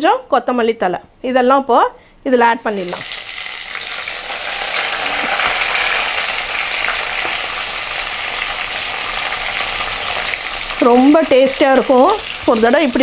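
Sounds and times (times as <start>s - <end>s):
vegetables sizzling in hot oil: 2.5s - 13.0s.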